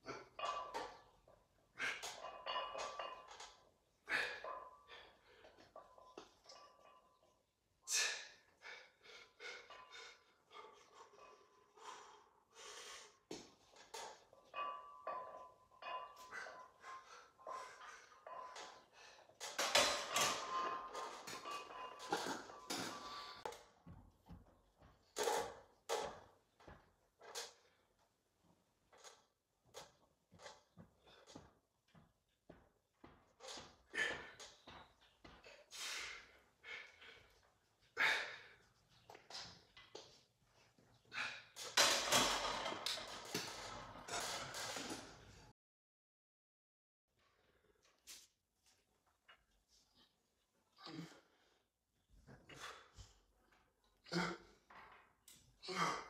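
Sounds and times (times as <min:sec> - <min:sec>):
person breathing hard: 0:11.8 - 0:13.2.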